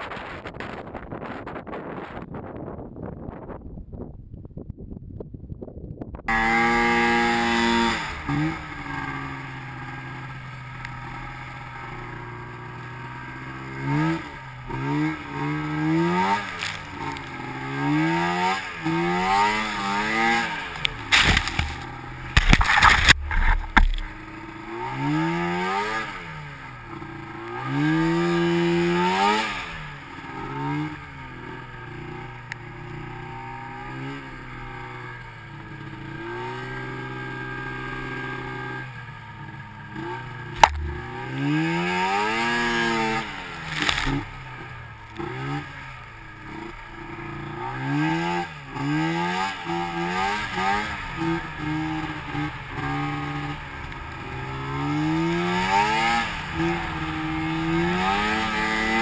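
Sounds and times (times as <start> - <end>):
snowmobile engine revving: 6.3 - 59.0
loud thumps and rushes: 21.0 - 24.2, 40.6 - 41.4.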